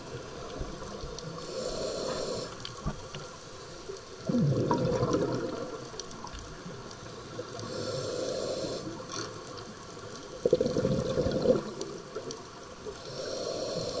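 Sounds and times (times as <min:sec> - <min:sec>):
hissing regulator inhalations: 0:01.4 - 0:02.8, 0:07.4 - 0:09.2, 0:13.0 - 0:14.0
exhaled bubbles gurgling: 0:04.1 - 0:09.5, 0:10.2 - 0:14.0.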